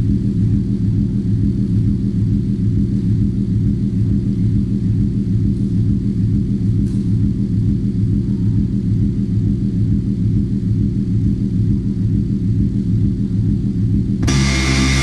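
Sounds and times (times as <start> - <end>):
low rumbling electronic drone: 0.0 - 15.0
harsh electronic noise: 14.2 - 15.0
steady buzzing tones: 14.2 - 15.0.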